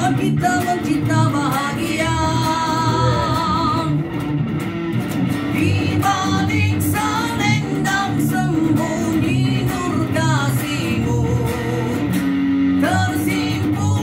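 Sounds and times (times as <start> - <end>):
man singing slow melody: 0.0 - 4.0
electric guitar: 0.0 - 14.0.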